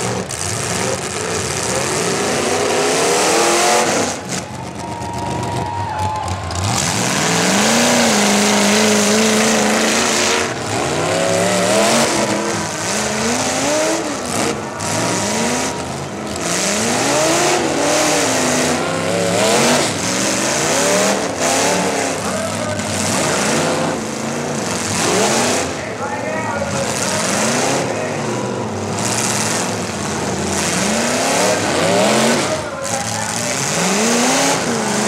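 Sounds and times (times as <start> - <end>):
car engines revving hard: 0.0 - 35.0.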